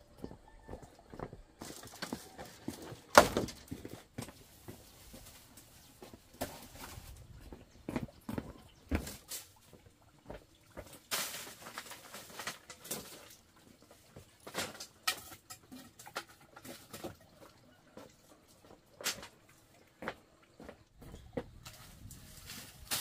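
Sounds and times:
dry straw rustling and crackling: 0:01.6 - 0:07.6, 0:10.8 - 0:17.3, 0:21.5 - 0:23.0.

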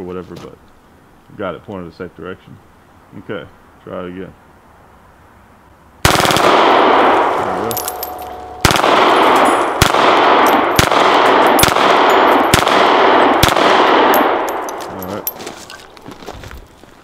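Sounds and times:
rapid gunshots: 0:06.1 - 0:07.2, 0:08.6 - 0:14.2.

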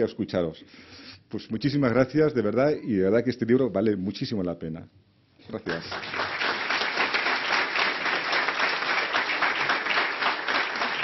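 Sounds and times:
audience applauding: 0:05.7 - 0:11.0.

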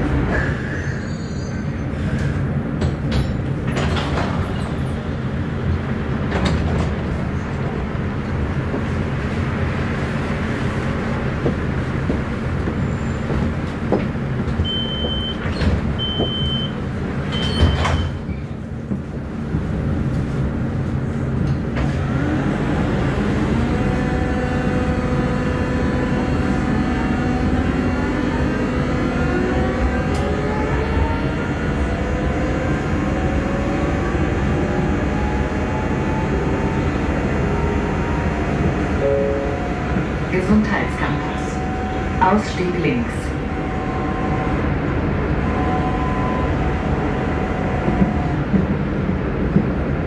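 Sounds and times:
tram motor whine: 0:00.0 - 0:50.0
tram rumble: 0:00.0 - 0:50.0
door warning beeps: 0:14.6 - 0:18.2.

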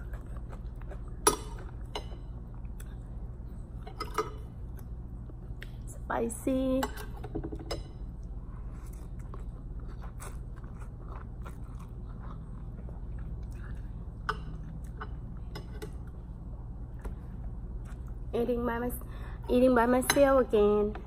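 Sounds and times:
person chewing food: 0:00.0 - 0:05.8, 0:08.1 - 0:16.2, 0:16.9 - 0:18.2
low room hum: 0:00.0 - 0:21.0.

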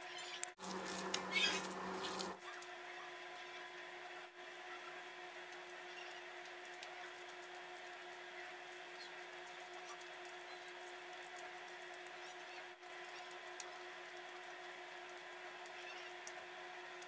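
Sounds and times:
steady low hum: 0:00.4 - 0:17.0
wet squishing of hands: 0:00.6 - 0:02.6.

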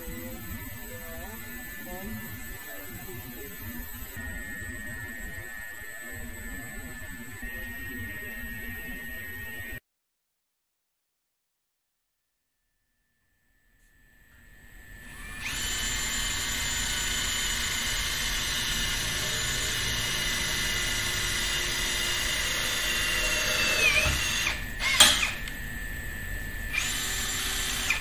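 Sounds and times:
cordless drill whirring: 0:14.8 - 0:28.0
sharp rivet snap: 0:24.9 - 0:25.6.

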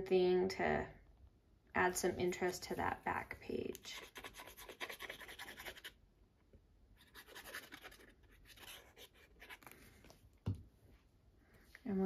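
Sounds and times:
glue nozzle scratching on card: 0:03.9 - 0:05.9, 0:07.0 - 0:09.7.

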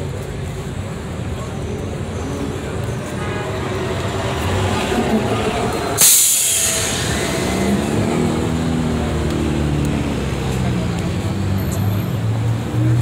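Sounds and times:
vehicle engines running: 0:00.0 - 0:13.0
loud hiss: 0:05.2 - 0:08.2.

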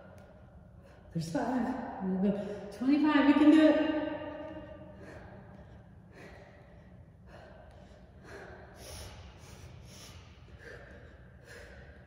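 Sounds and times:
woman breathing hard: 0:00.0 - 0:02.8, 0:04.3 - 0:12.0.

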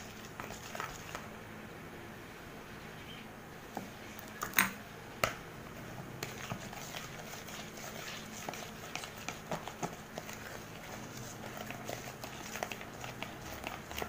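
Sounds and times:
spatula scraping plastic bowl: 0:00.0 - 0:01.3, 0:06.2 - 0:14.0.

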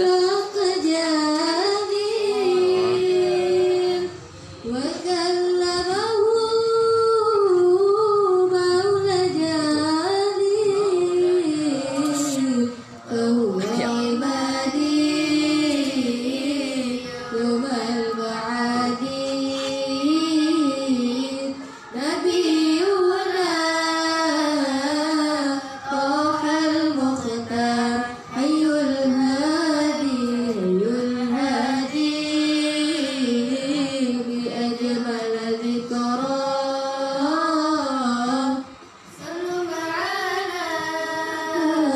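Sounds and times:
woman singing into a microphone: 0:00.0 - 0:41.9.

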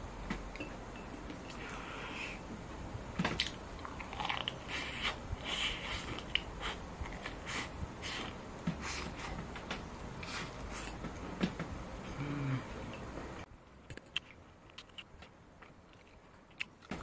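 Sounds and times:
crunching and chewing fried chicken: 0:03.4 - 0:08.4, 0:13.9 - 0:17.0.

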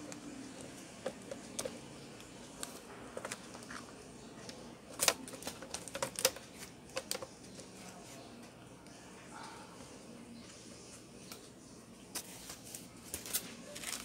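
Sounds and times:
plastic keyboard deck clicking: 0:05.0 - 0:07.3.

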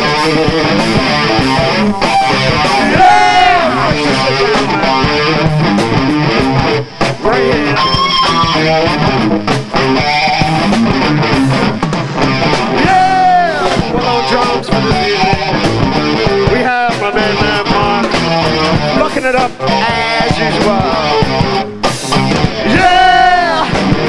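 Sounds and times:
electric guitar bending notes: 0:00.0 - 0:12.9
funk band playing: 0:00.0 - 0:24.0.

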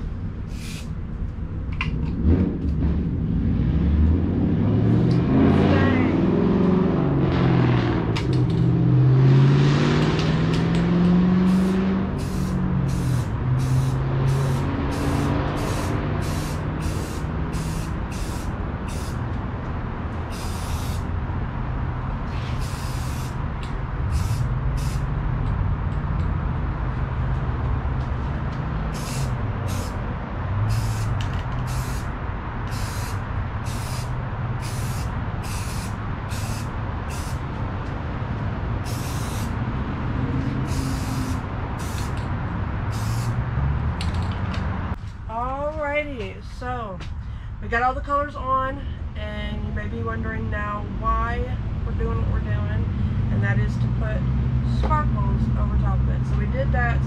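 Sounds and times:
paint spray gun hissing: 0:00.5 - 0:00.9, 0:11.5 - 0:19.2, 0:20.3 - 0:21.1, 0:22.5 - 0:23.4, 0:24.1 - 0:25.1, 0:28.9 - 0:30.0, 0:30.7 - 0:32.1, 0:32.7 - 0:37.4, 0:38.8 - 0:39.6, 0:40.6 - 0:42.2, 0:42.9 - 0:43.4
air compressor motor hum: 0:11.5 - 0:19.2, 0:30.7 - 0:32.1, 0:40.6 - 0:42.2.

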